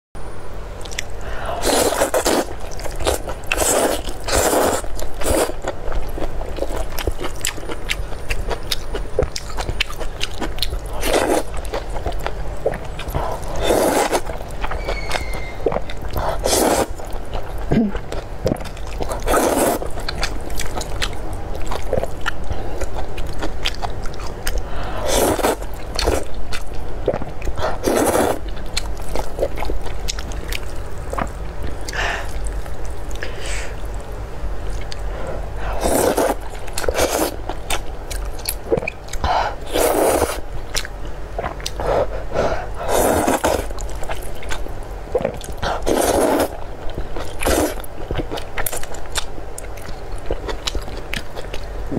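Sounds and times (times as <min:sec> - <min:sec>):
steady low hum: 0:00.2 - 0:51.9
wet chewing: 0:00.8 - 0:34.0, 0:34.6 - 0:51.7
noodle slurping: 0:01.6 - 0:05.6, 0:13.2 - 0:14.3, 0:16.2 - 0:17.0, 0:19.2 - 0:19.9, 0:25.0 - 0:26.2, 0:27.7 - 0:28.4, 0:35.7 - 0:37.4, 0:39.6 - 0:40.4, 0:42.7 - 0:43.7, 0:45.2 - 0:46.6, 0:47.4 - 0:47.8.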